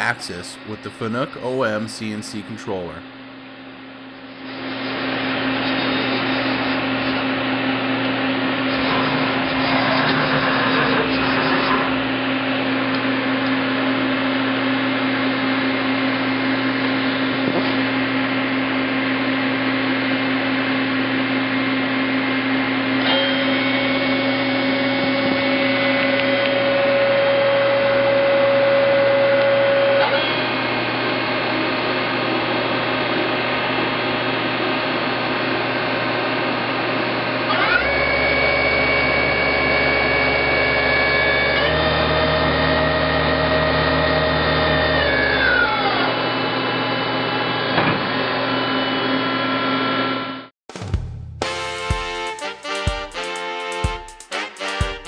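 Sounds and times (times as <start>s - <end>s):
higher whine: 0.0s - 47.1s
machine motor hum and whine: 0.0s - 50.5s.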